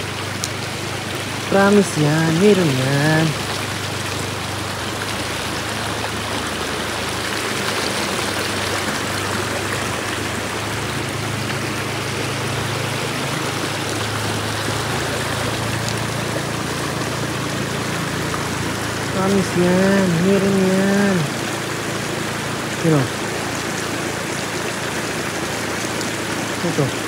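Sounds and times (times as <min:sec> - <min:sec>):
water rushing: 0:00.0 - 0:27.0.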